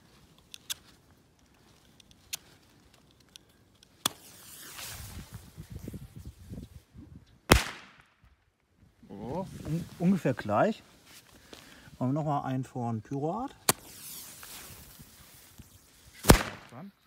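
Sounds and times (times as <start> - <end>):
firecracker scraping on striker: 13.6 - 14.8.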